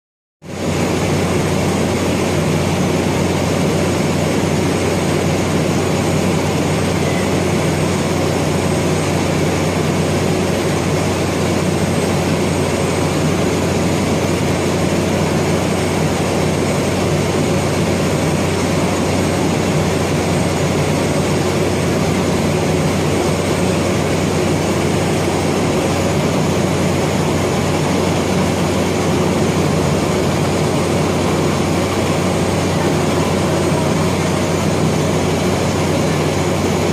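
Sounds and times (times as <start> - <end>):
machinery drone: 0.4 - 36.9.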